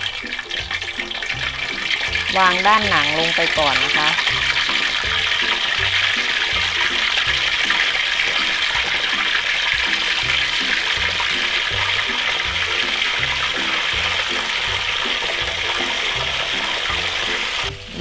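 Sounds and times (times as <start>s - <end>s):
oil sizzling in a wok: 0.0s - 18.0s
soft background music: 0.0s - 18.0s.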